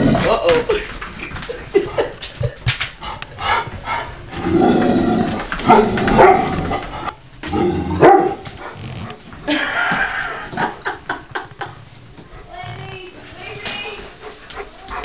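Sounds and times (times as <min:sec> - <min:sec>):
dog barking: 0:05.7 - 0:06.5, 0:08.0 - 0:08.4.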